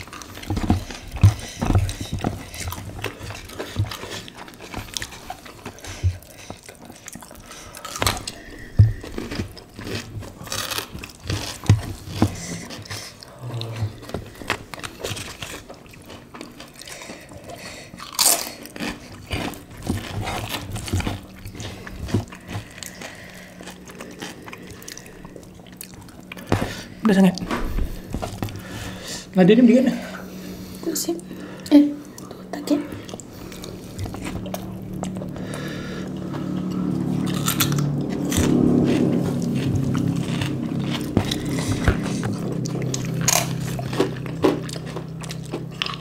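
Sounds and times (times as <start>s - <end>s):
chewing and crunching food: 0.0s - 46.0s.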